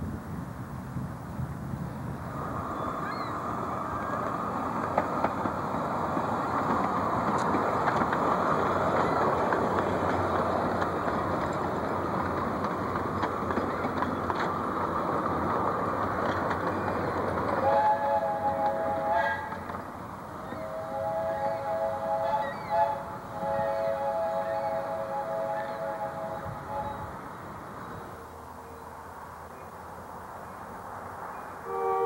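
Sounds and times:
train cars rumbling and rattling: 0:00.0 - 0:32.0
wheel clicks on rails: 0:04.2 - 0:17.7.

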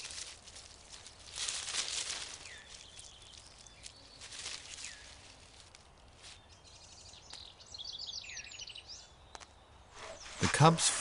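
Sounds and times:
rustling and snapping of bushes: 0:00.0 - 0:06.5.

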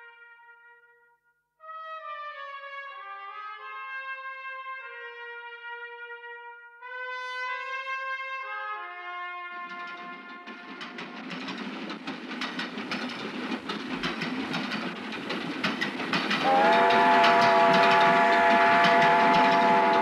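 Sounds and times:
train wheels clacking: 0:09.6 - 0:20.0
train whistle: 0:16.3 - 0:20.0.

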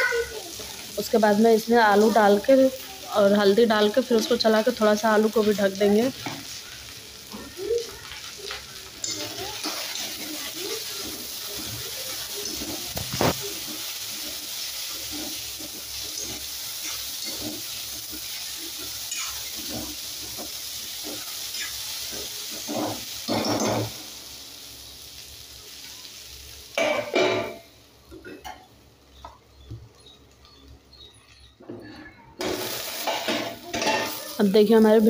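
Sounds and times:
vegetables sizzling in oil: 0:00.0 - 0:31.6, 0:32.4 - 0:35.0
metal spatula scraping a pan: 0:09.0 - 0:24.0.

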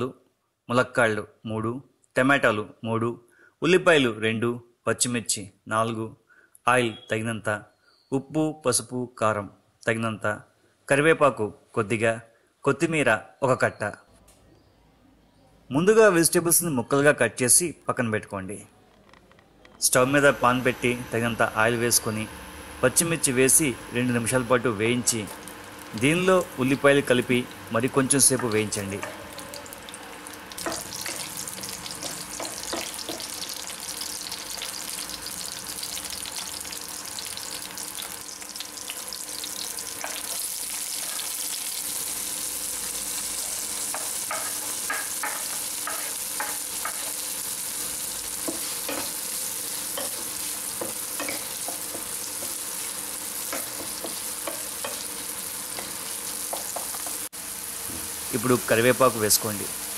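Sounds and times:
vegetables sizzling in oil: 0:20.2 - 0:59.9.

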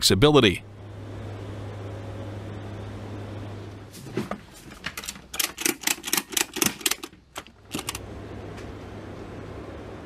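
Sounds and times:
low aircraft hum: 0:00.0 - 0:10.0
strap ratchet clicking: 0:05.3 - 0:08.0.

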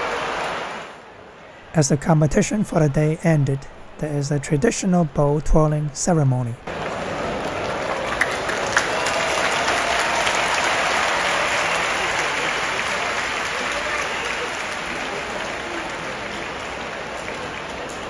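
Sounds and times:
crowd applauding: 0:00.0 - 0:01.0, 0:06.7 - 0:18.0.

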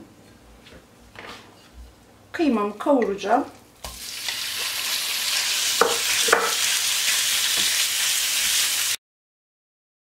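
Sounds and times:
meat sizzling in a frying pan: 0:03.8 - 0:09.0.

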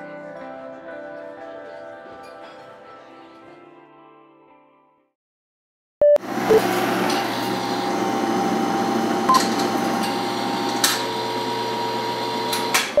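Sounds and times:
machine hum: 0:06.2 - 0:13.0.

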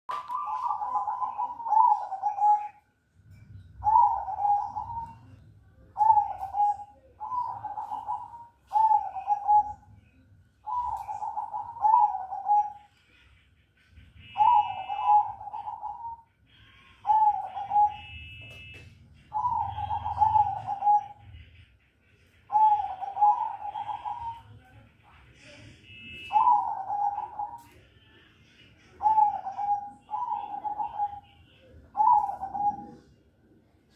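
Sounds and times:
dove cooing: 0:00.1 - 0:02.8, 0:03.7 - 0:09.9, 0:10.6 - 0:12.9, 0:14.3 - 0:21.6, 0:22.4 - 0:24.6, 0:26.2 - 0:27.8, 0:28.8 - 0:33.3
bird chirping: 0:00.1 - 0:33.2.

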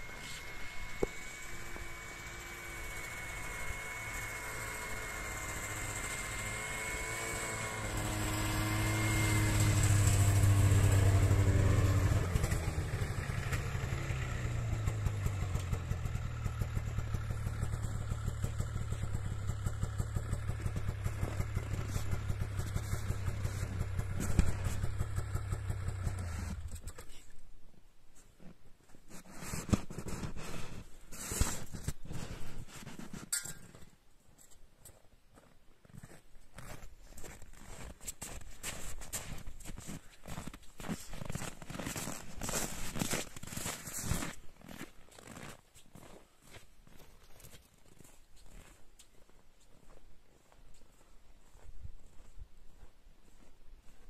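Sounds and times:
snowmobile engine: 0:00.0 - 0:27.2, 0:29.1 - 0:33.4, 0:37.6 - 0:44.5.

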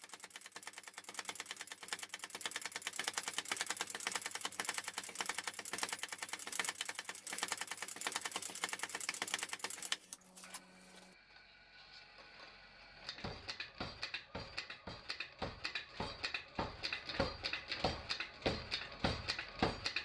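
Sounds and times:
power hammer striking steel: 0:13.1 - 0:20.0.

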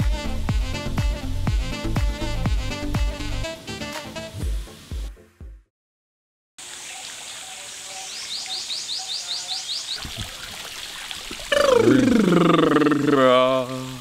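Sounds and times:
fountain water splashing: 0:06.6 - 0:14.0.

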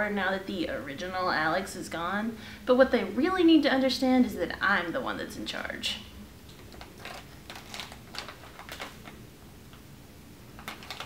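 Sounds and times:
small objects clicking and tapping: 0:10.6 - 0:11.0.

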